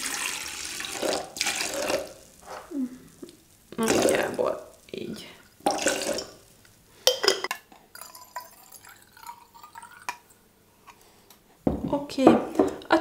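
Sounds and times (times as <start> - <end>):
liquid trickling and gurgling: 0.0 - 2.2, 5.6 - 6.4, 8.0 - 10.4
glass bottles clicking: 7.1 - 10.2.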